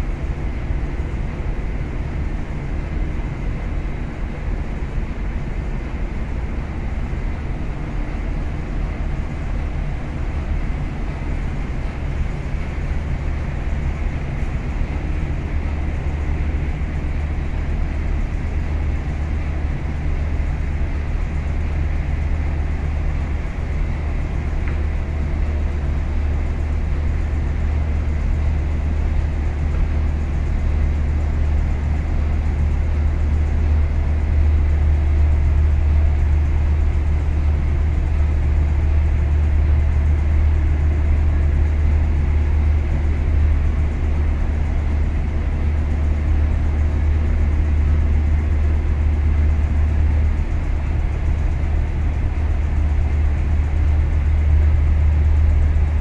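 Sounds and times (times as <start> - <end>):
deep engine room machinery drone: 0.0 - 56.0.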